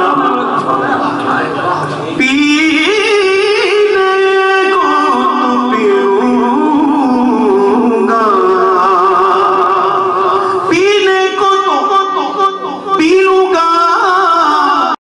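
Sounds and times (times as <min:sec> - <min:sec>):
man singing: 0:00.0 - 0:01.1, 0:02.2 - 0:15.0
singer breathing: 0:10.1 - 0:10.7.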